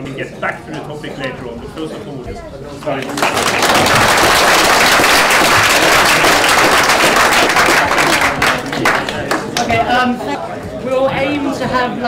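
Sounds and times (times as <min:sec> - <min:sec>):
audience applause: 0:03.0 - 0:09.8.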